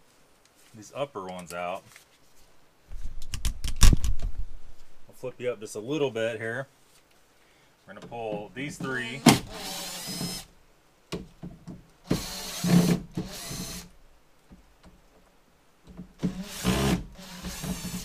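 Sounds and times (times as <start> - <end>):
cordless drill motor running: 9.5 - 10.5, 12.1 - 13.9, 16.3 - 18.0.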